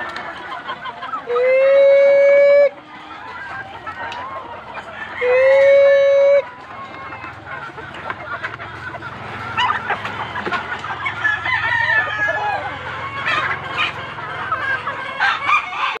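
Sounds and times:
chickens clucking: 0:00.0 - 0:16.0
rooster crowing: 0:04.8 - 0:06.5, 0:11.0 - 0:13.2.

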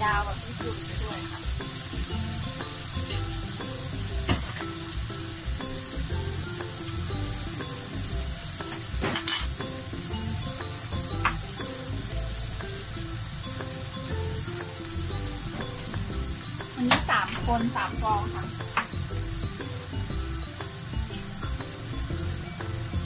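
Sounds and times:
eggs sizzling in oil: 0:00.0 - 0:23.0
faint background music: 0:00.0 - 0:23.0.

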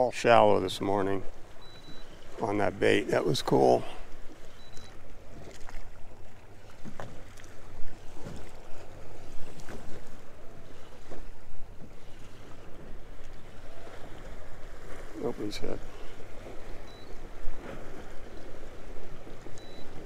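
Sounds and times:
water lapping against boat hull: 0:00.0 - 0:20.0.

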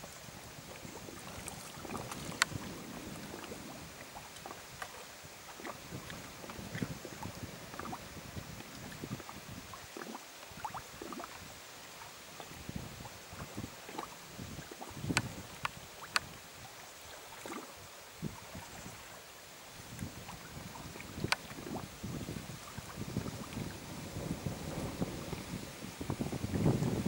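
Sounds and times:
faint hiss: 0:00.0 - 0:27.0
small waves lapping on shore: 0:00.0 - 0:27.0
sharp water splashes: 0:00.8 - 0:08.0, 0:13.4 - 0:17.7.

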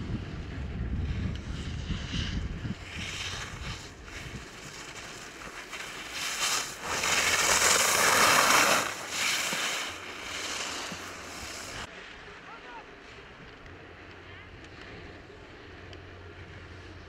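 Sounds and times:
wind buffeting microphone: 0:00.0 - 0:04.9
rushing hiss of spray: 0:02.9 - 0:11.9.

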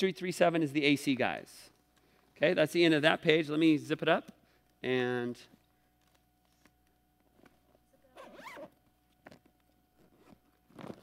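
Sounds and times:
zipper pulled on plastic bag: 0:08.2 - 0:08.8, 0:10.0 - 0:11.0.

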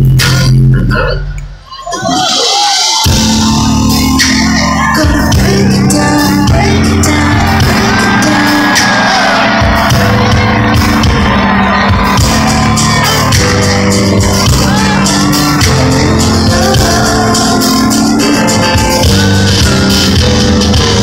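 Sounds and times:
loud concert music: 0:00.0 - 0:21.0
person singing: 0:01.9 - 0:21.0
heavy sustained bass: 0:09.6 - 0:21.0.

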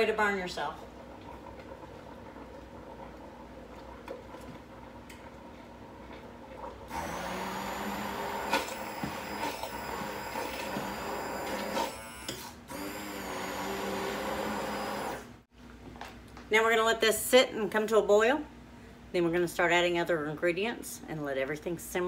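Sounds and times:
immersion blender motor whirring: 0:06.9 - 0:15.3.

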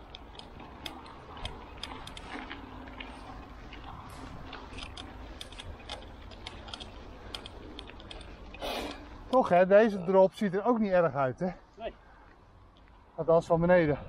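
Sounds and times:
light clicks and ticks: 0:00.0 - 0:09.5.

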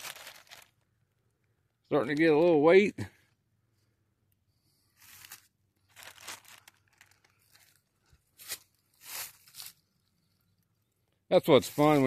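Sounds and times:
footsteps crunching in dry leaves: 0:00.0 - 0:00.7, 0:05.0 - 0:09.9, 0:11.6 - 0:12.0.

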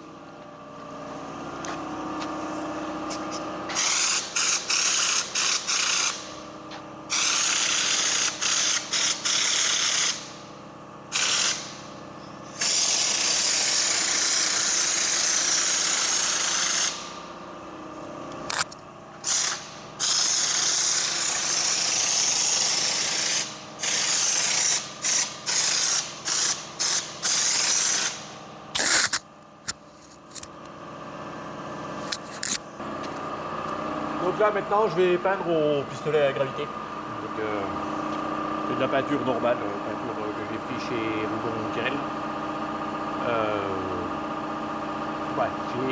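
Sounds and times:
spray gun hissing: 0:03.7 - 0:06.2, 0:07.1 - 0:10.3, 0:11.1 - 0:11.8, 0:12.5 - 0:17.1, 0:19.2 - 0:28.2.

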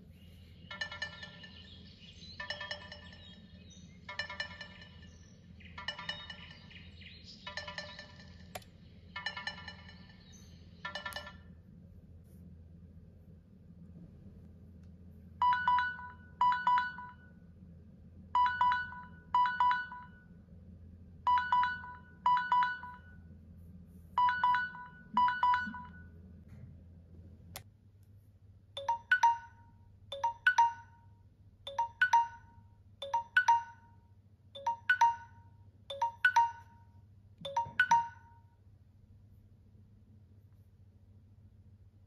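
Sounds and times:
bell-like alarm chime: 0:15.4 - 0:17.3, 0:18.4 - 0:20.3, 0:21.3 - 0:23.2, 0:24.2 - 0:26.1, 0:28.8 - 0:31.1, 0:31.7 - 0:34.0, 0:34.6 - 0:36.9, 0:37.5 - 0:38.5
low pip and higher chime: 0:24.2 - 0:26.1, 0:37.5 - 0:38.5.

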